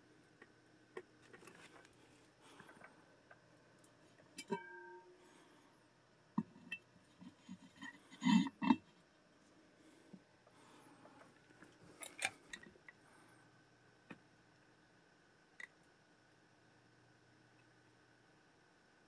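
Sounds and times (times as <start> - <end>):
glass clink ringing: 4.4 - 5.2.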